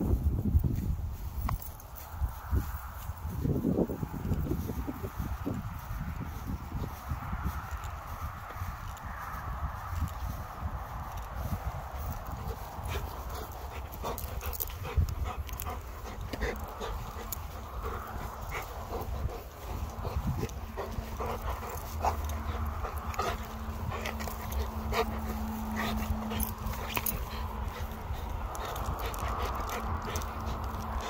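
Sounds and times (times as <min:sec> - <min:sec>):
wind rumbling on microphone: 0:00.0 - 0:31.0
dog panting: 0:10.0 - 0:31.0
steady low hum: 0:10.3 - 0:31.0.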